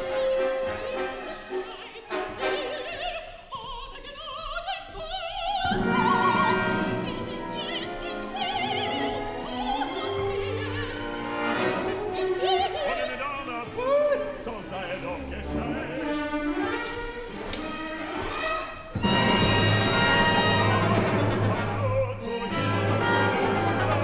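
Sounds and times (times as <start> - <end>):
opera singing voices: 0.0 - 16.8, 19.1 - 24.0
orchestra with prominent strings: 5.7 - 24.0.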